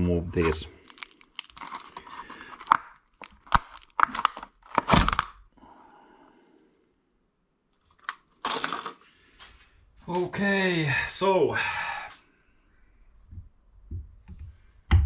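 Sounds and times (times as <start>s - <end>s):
plastic sleeve crackling and scraping: 0.2s - 5.4s, 7.8s - 9.0s
faint plastic rustle: 0.3s - 3.3s.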